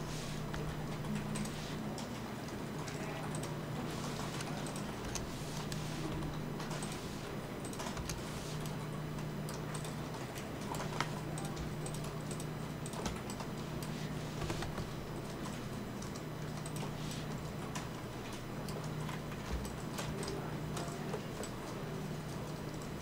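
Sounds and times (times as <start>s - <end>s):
steady low hum: 0.0s - 23.0s
keyboard and mouse clicking: 0.5s - 7.0s, 7.6s - 17.9s.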